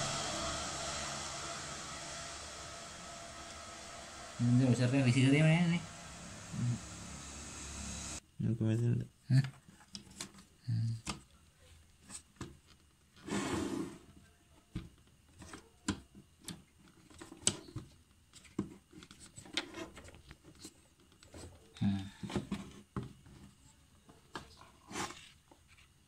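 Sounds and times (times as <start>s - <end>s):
scraping noise: 0.0s - 8.2s.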